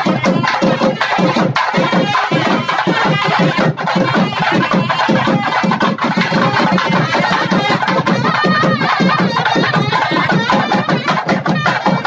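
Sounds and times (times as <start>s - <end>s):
barrel drums beaten with sticks: 0.0s - 12.0s
wind instrument melody: 0.0s - 12.0s.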